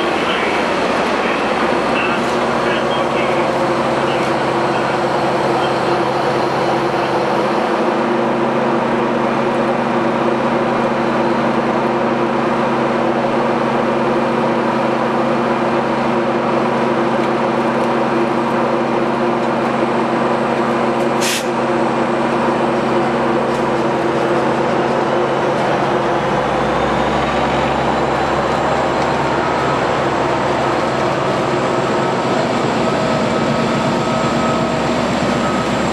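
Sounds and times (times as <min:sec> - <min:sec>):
diesel locomotive engine drone: 0:00.0 - 0:35.9
air release hiss: 0:21.2 - 0:21.6.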